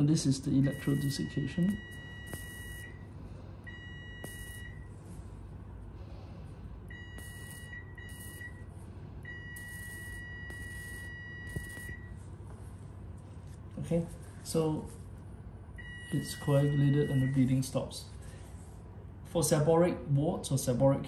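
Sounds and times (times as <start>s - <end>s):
low hum: 0.0s - 19.3s
high electronic beep: 0.6s - 3.0s, 3.7s - 4.9s, 6.9s - 8.6s, 9.3s - 12.1s, 15.8s - 17.4s.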